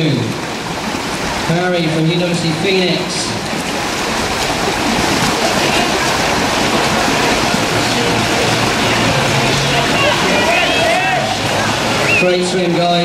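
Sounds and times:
water sloshing: 0.0 - 13.0
spectators chattering: 3.8 - 13.0.

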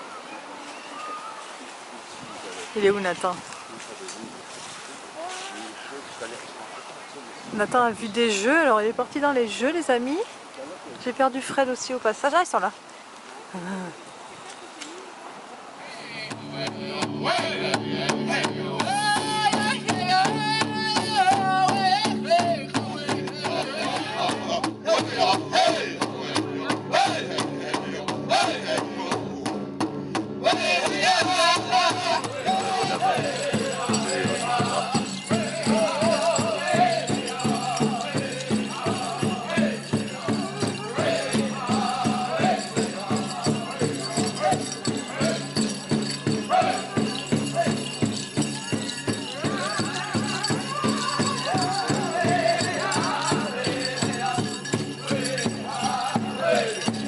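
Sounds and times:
person singing: 16.1 - 29.1, 30.5 - 45.9, 46.5 - 57.0
drum beaten at steady pulse: 16.3 - 57.0
rattling jingles: 30.5 - 57.0.

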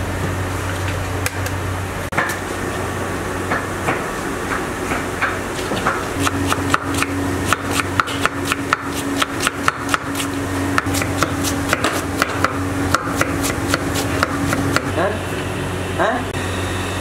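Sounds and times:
steady low hum: 0.0 - 17.0
knife chopping cabbage on wood: 5.8 - 14.9.

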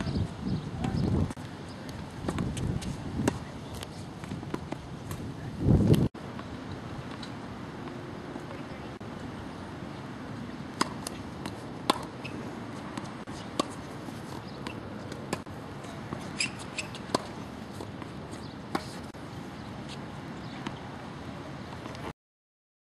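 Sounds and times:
tennis ball bouncing: 1.8 - 5.2, 10.4 - 19.2
racket hitting ball: 10.6 - 19.2.

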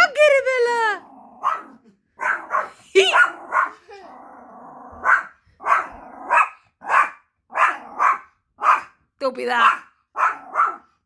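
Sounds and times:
dog growling: 0.8 - 6.6, 7.5 - 8.3
small dog barking: 1.4 - 3.8, 5.0 - 9.0, 9.6 - 11.0.

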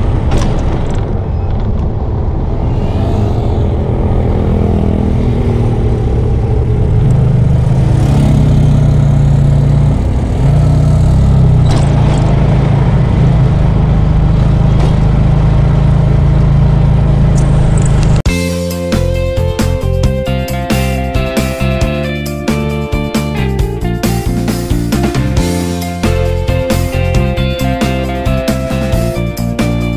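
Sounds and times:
car interior engine and road drone: 0.0 - 18.3.

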